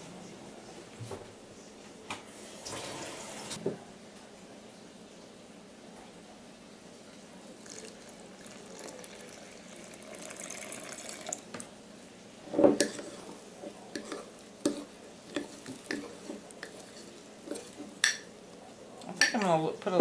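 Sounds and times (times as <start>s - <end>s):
water pouring into glass jar: 7.6s - 11.4s.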